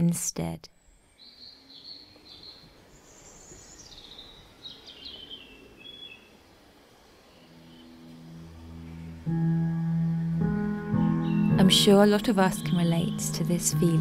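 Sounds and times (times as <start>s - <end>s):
outdoor hiss: 0.0s - 13.8s
songbird singing: 0.8s - 14.0s
gentle music: 5.6s - 14.0s.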